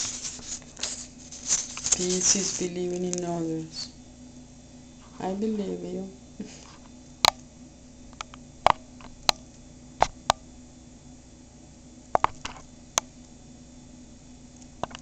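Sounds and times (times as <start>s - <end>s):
faint low hum: 0.0s - 15.0s
sharp clicks and taps: 12.2s - 13.1s.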